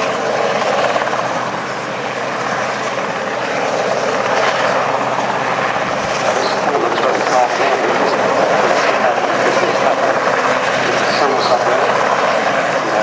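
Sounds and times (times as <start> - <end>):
helicopter hovering drone: 0.0 - 13.0.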